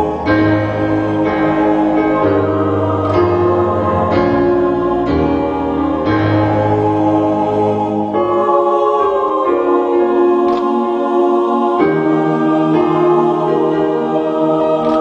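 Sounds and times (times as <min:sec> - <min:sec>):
choir singing sustained chords: 0:00.0 - 0:15.0.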